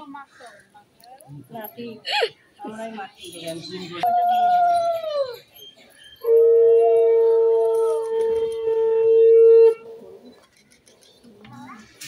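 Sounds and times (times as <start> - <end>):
conch shell blown: 6.2 - 9.8.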